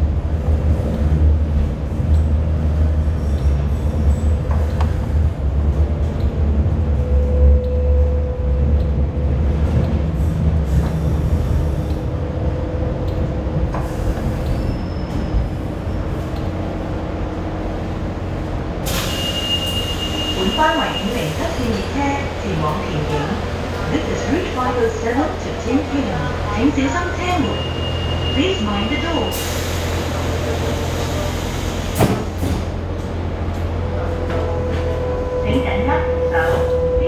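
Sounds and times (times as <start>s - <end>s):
light rail car rumbling: 0.0s - 37.0s.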